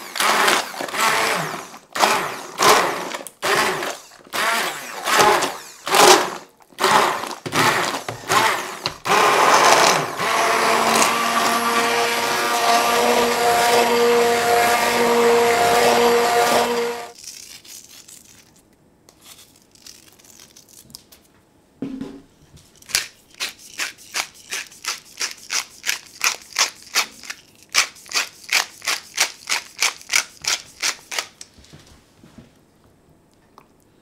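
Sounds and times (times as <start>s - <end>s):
pepper mill grinding: 17.1s - 20.8s, 22.8s - 31.4s.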